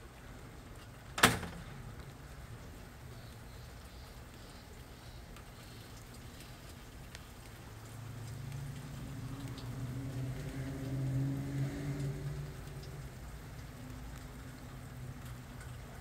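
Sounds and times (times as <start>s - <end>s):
faint ticks: 3.1s - 15.8s.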